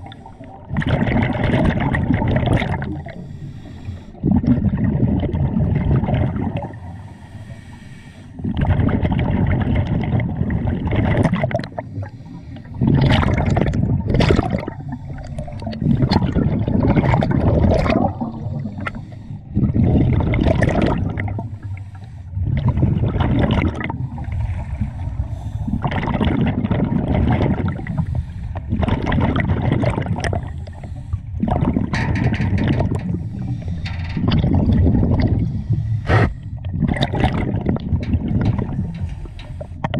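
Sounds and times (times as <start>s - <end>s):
exhaled bubbles surging: 0.0s - 3.3s, 4.2s - 7.0s, 8.4s - 11.9s, 12.6s - 39.9s
diver breathing through regulator: 2.9s - 4.5s, 6.7s - 8.5s, 11.7s - 12.8s, 14.6s - 16.6s, 18.1s - 19.8s, 20.8s - 23.2s, 23.9s - 26.3s, 27.6s - 28.8s, 30.1s - 32.2s, 33.0s - 34.3s, 34.9s - 36.8s, 38.6s - 39.9s.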